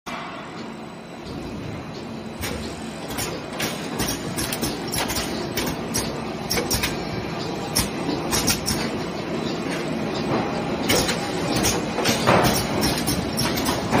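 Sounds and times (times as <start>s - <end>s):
machine hum: 0.1s - 14.0s
rapid mechanical clicks: 2.4s - 7.0s, 10.9s - 14.0s.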